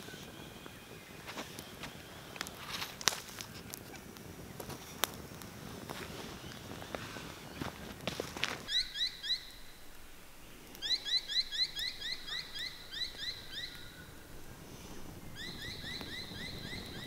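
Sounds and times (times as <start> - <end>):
bird chirping: 8.7 - 17.0.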